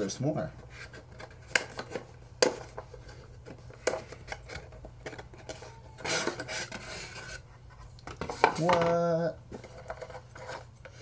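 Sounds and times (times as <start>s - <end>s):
cardboard rustling and scraping: 0.5s - 8.9s, 9.5s - 11.0s
cardboard packaging clicks and taps: 1.2s - 5.6s.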